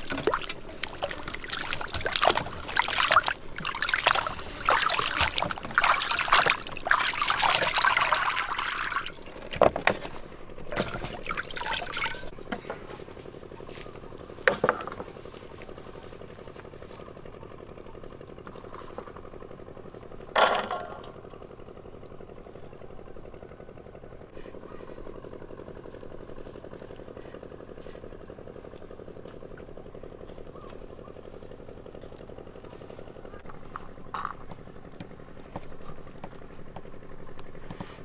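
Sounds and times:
pot bubbling: 0.0s - 9.6s, 10.6s - 12.3s
insects chirping: 0.0s - 12.3s, 13.6s - 24.1s, 24.7s - 38.0s.

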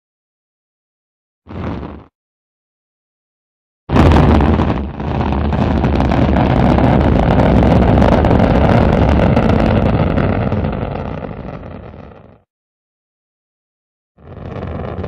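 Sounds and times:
rocket engine rumble: 3.9s - 12.4s, 14.2s - 15.0s.

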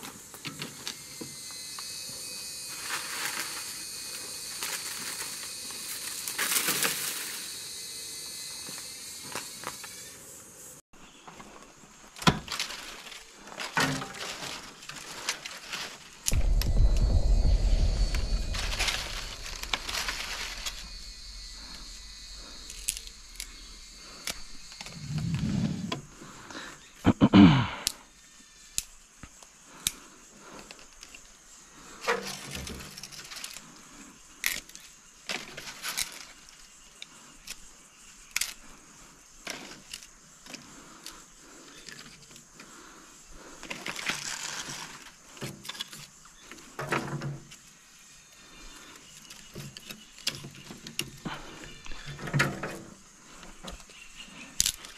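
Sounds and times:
dry leaves rustling: 2.7s - 7.6s, 12.5s - 16.2s.

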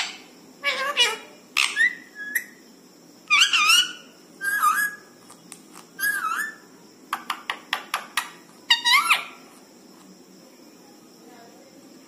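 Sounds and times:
parakeet whistled calls: 0.0s - 2.6s, 3.3s - 5.1s, 6.0s - 6.7s, 8.7s - 9.4s
parakeet sharp chirps: 3.3s - 5.1s.

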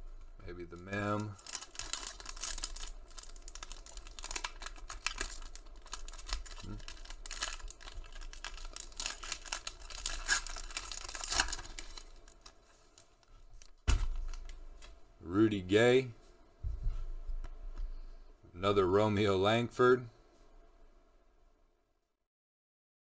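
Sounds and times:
foil wrapper crinkling and tearing: 0.7s - 14.6s.

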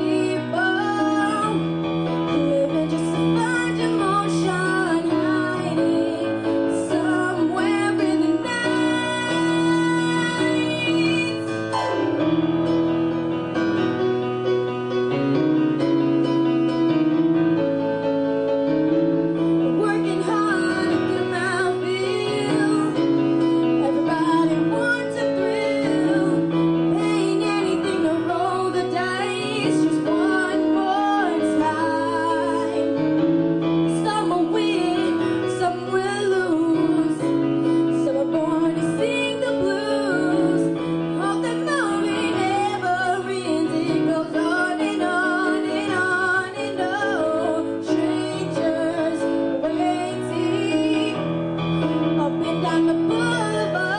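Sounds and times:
girl singing into a microphone: 0.0s - 1.6s, 2.3s - 11.6s, 19.8s - 23.2s, 23.8s - 33.2s, 33.9s - 51.2s, 52.2s - 53.9s
piano accompaniment: 0.0s - 53.9s.

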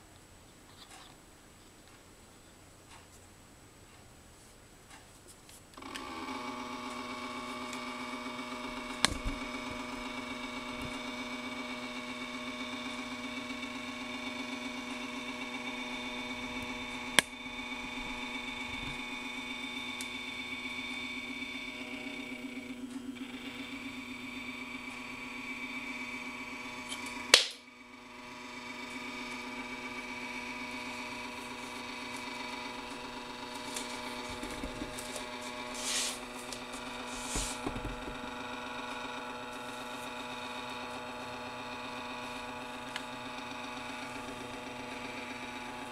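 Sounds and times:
stepper motor whining: 5.8s - 45.9s.

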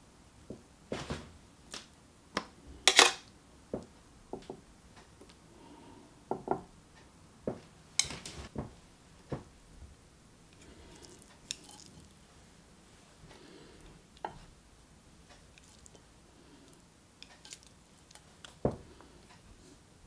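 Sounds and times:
metal tongs clinking on plate: 2.9s - 3.2s.

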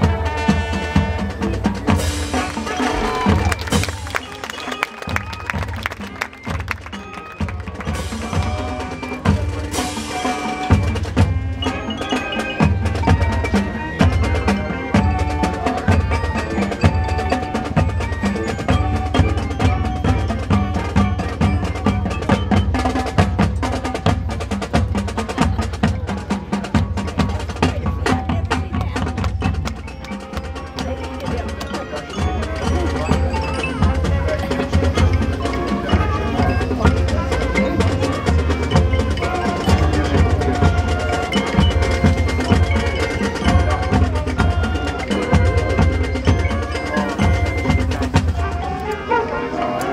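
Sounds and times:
brass and woodwind chords: 0.0s - 6.3s, 30.0s - 49.9s
drums: 0.0s - 49.9s
marching band playing: 0.0s - 49.9s
mallet keyboards striking rapidly: 1.3s - 49.9s.

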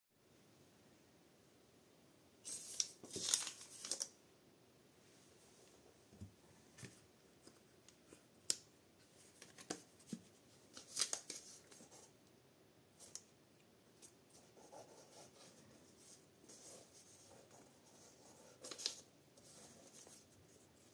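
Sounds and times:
paper rustle: 2.4s - 4.2s, 9.1s - 12.1s, 14.7s - 20.9s.

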